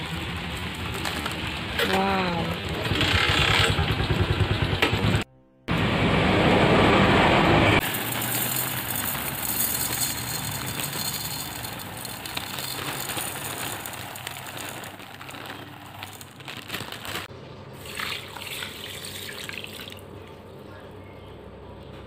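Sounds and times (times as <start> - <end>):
rice grains pouring into bowl: 7.8 - 20.0.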